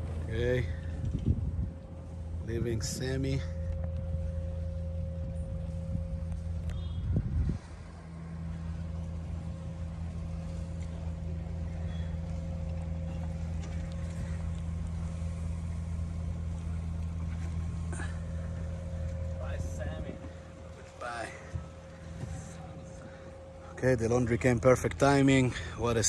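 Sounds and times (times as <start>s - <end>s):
boat engine droning: 0.0s - 26.0s.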